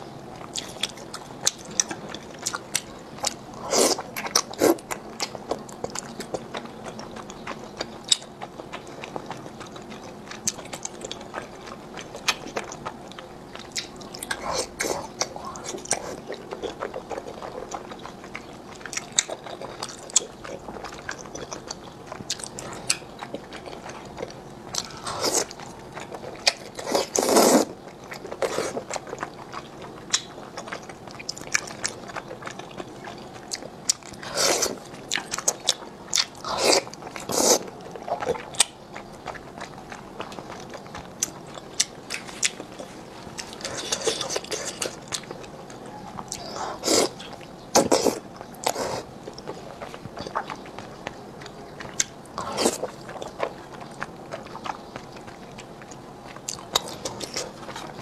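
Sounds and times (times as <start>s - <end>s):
wet chewing of noodles: 0.0s - 58.0s
slurping: 22.2s - 27.8s, 34.1s - 35.6s, 36.3s - 38.4s, 46.3s - 50.5s.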